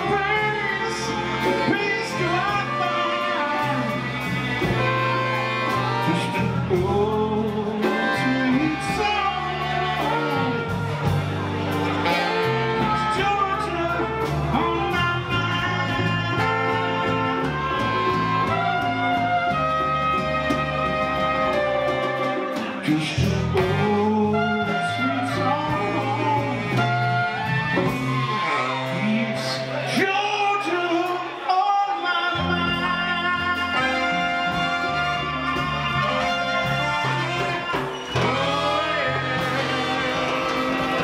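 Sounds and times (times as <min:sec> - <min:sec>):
person singing: 0:00.0 - 0:11.2, 0:21.8 - 0:41.0
live soul band playing: 0:00.0 - 0:41.0.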